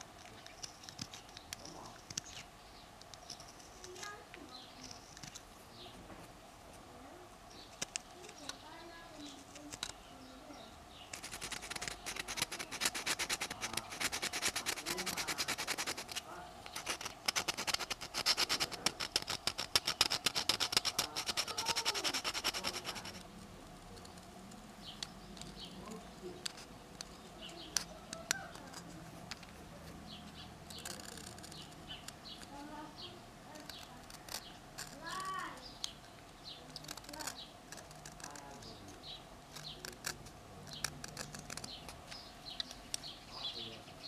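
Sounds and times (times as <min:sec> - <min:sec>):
knife cutting wood: 0:11.1 - 0:24.3, 0:36.7 - 0:43.1
scraping strokes on wood: 0:11.1 - 0:43.2.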